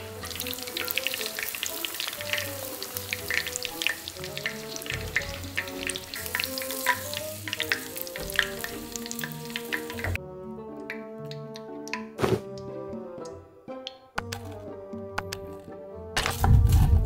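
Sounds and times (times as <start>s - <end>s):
oil crackling and sizzling: 0.0s - 10.2s, 10.8s - 12.2s.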